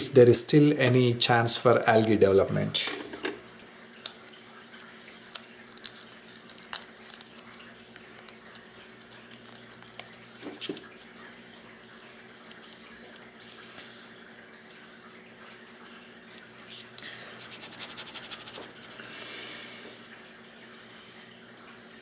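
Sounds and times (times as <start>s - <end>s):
paper stickers rustling and peeling: 4.0s - 11.1s, 12.0s - 13.6s.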